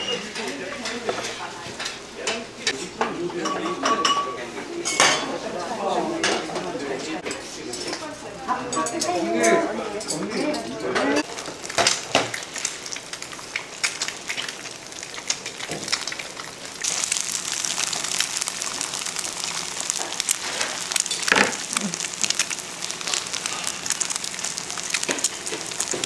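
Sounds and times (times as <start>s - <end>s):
food sizzling in a pan: 11.2s - 26.0s.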